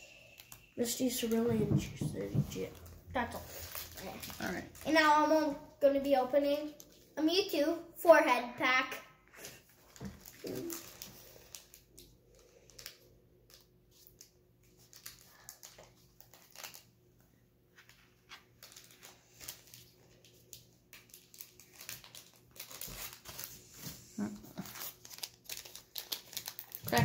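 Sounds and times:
foil wrapper crinkling: 2.7 - 5.2, 9.6 - 17.0, 17.9 - 27.0.

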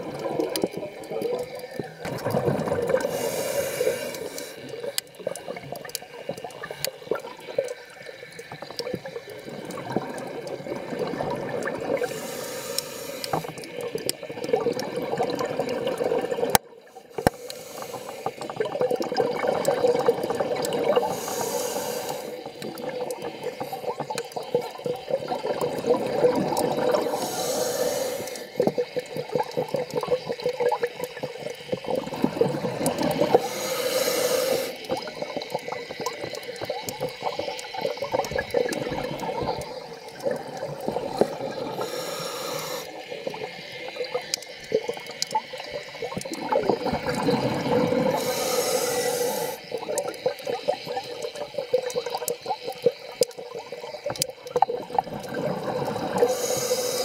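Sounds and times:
exhaled air bubbling: 0.0 - 57.0
regulator inhalation hiss: 3.0 - 4.8, 12.0 - 13.7, 16.9 - 18.6, 20.9 - 22.6, 27.0 - 28.7, 33.3 - 35.0, 41.2 - 44.7, 48.0 - 51.2, 56.1 - 57.0.

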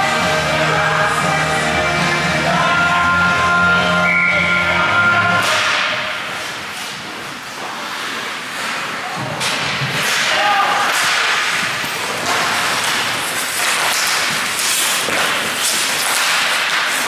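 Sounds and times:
hockey sticks clacking: 5.4 - 17.0
skate blades scraping ice: 6.2 - 17.0.

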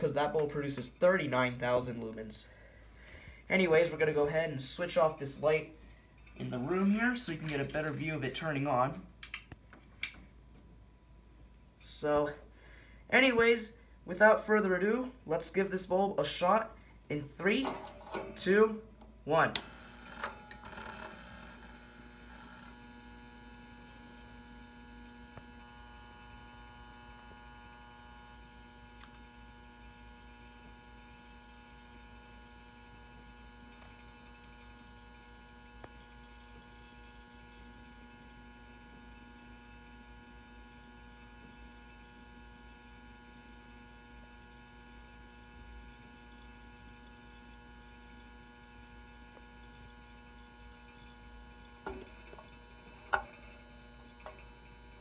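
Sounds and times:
electrical ballast hum: 0.0 - 55.0.

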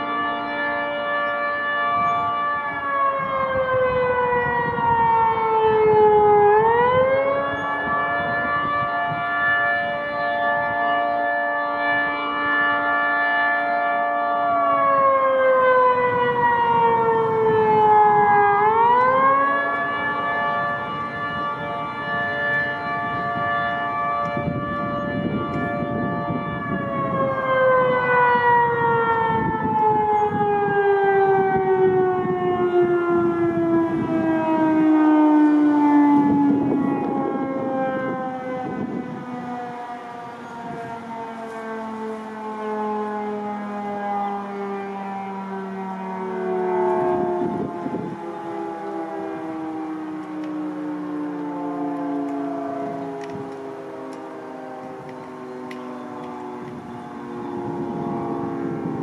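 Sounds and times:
warning siren wailing: 0.0 - 59.0.

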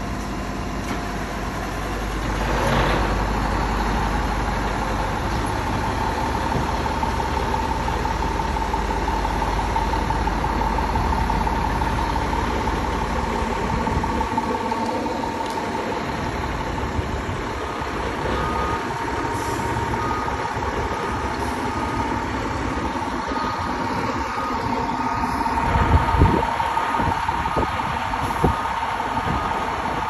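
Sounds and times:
vehicle engine rumbling: 0.0 - 30.0.

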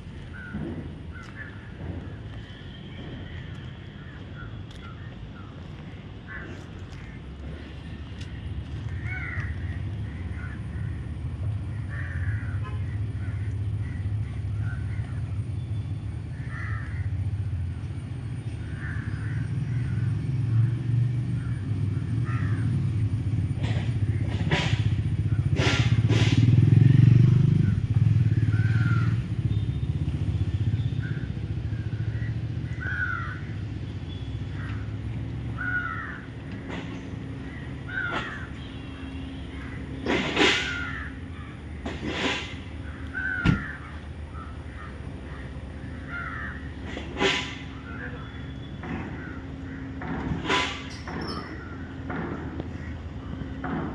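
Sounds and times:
road traffic rumble: 0.0 - 53.9
crows cawing: 0.2 - 1.8, 6.2 - 7.7, 8.8 - 11.1, 11.7 - 15.3, 16.3 - 17.3, 18.6 - 20.0, 22.2 - 22.7, 32.0 - 33.6, 34.5 - 36.5, 37.3 - 39.9, 40.6 - 41.6, 42.8 - 46.8, 49.0 - 50.8
vehicle passing close by: 17.2 - 33.8.

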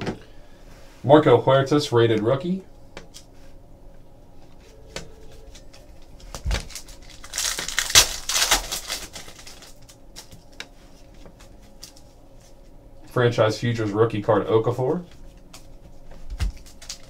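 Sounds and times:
wrapper crinkling: 5.5 - 10.6, 16.4 - 17.0
foil pack tearing: 6.3 - 10.3, 16.5 - 17.0.

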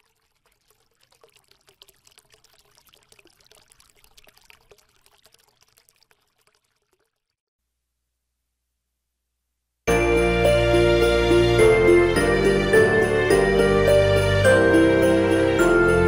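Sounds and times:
water trickling and pouring: 0.0 - 7.4.

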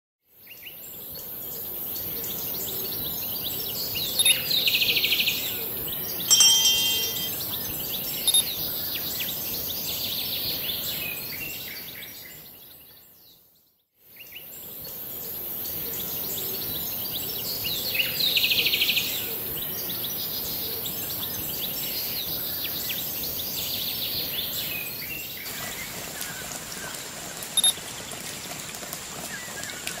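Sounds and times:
bell-like chime: 6.3 - 7.4.

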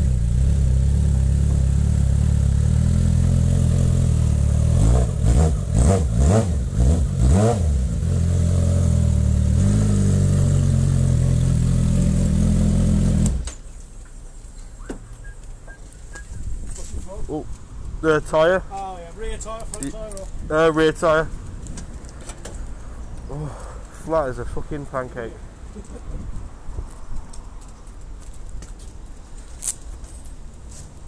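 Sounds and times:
motorcycle engine revving: 0.0 - 13.5.

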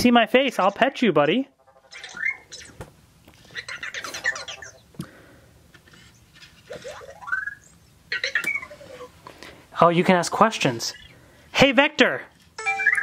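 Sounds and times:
robot electronic chirps: 1.5 - 2.8, 12.6 - 13.0.

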